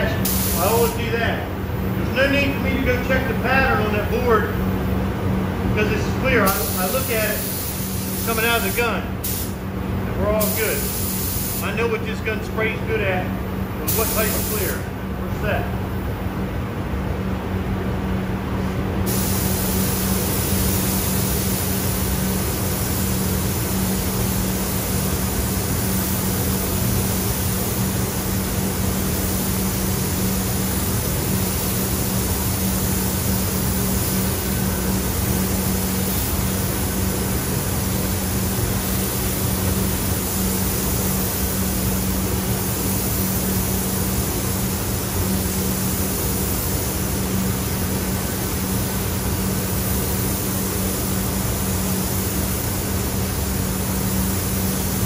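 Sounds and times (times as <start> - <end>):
rush of air from spray gun: 0.0 - 1.0, 6.4 - 11.8, 13.8 - 14.9, 18.6 - 55.0
ventilation fans humming: 0.0 - 55.0.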